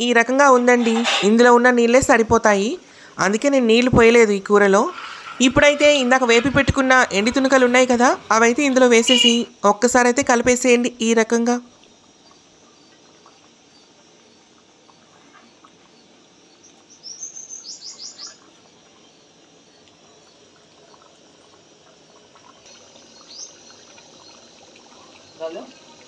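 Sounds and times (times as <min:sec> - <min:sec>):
small bird chirping: 0:11.9 - 0:21.0, 0:22.6 - 0:26.0.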